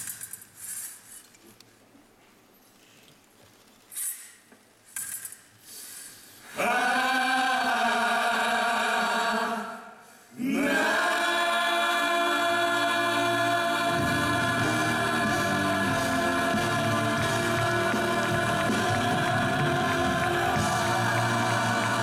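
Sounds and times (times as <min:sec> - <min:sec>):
cast singing in chorus: 0:06.5 - 0:22.0.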